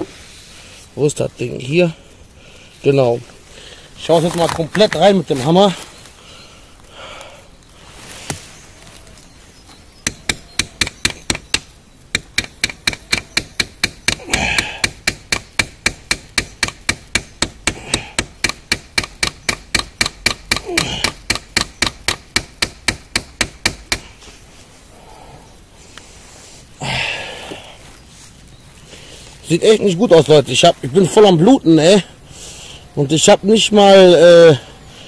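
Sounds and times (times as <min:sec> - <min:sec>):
hammer striking knife into wood: 0:10.0 - 0:24.0.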